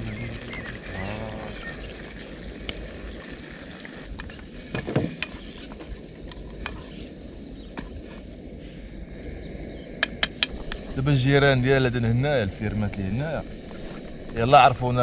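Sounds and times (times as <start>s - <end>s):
steady low rumble: 5.9s - 15.0s.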